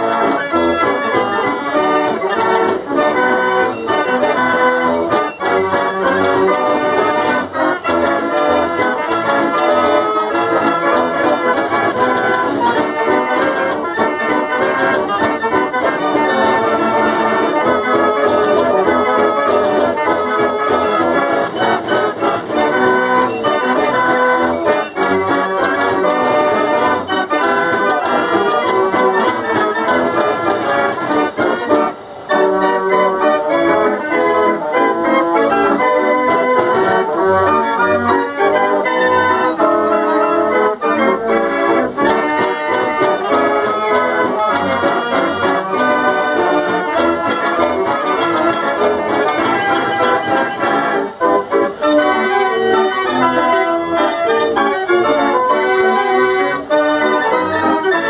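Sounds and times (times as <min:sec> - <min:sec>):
drum beat: 0:00.0 - 0:32.0, 0:42.0 - 0:51.4
fairground organ playing a tune: 0:00.0 - 0:58.0.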